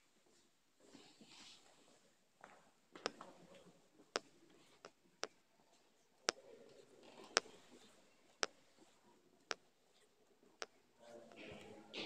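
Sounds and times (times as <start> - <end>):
faint room noise: 0.0 - 12.0.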